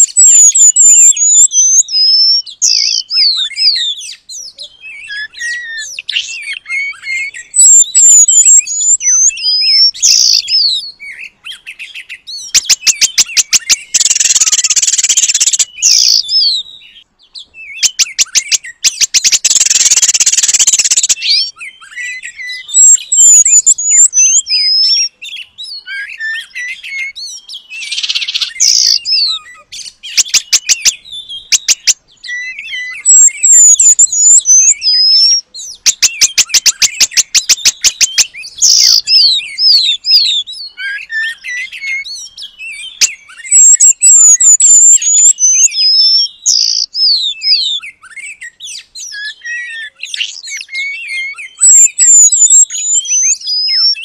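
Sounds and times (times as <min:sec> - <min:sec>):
songbird singing: 0:00.0 - 0:54.0.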